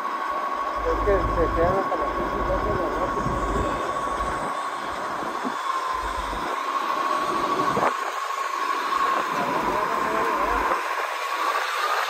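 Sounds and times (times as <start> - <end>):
high whine: 0.0 - 12.0
diesel engine running: 0.6 - 7.8, 8.9 - 10.8.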